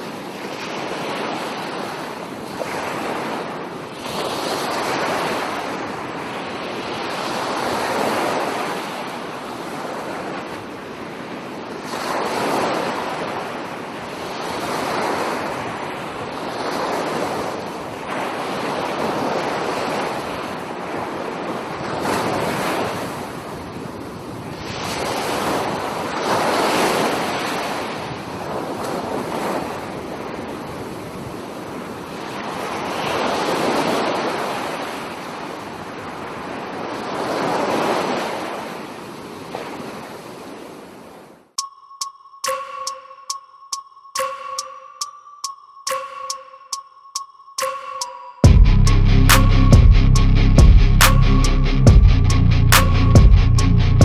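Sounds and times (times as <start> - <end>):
sea waves washing onto beach: 0.0 - 41.2.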